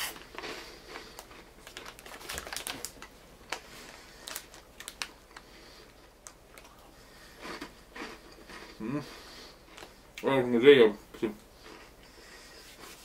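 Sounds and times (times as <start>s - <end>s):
chewing crunchy snack: 0.0s - 3.6s, 6.2s - 10.0s.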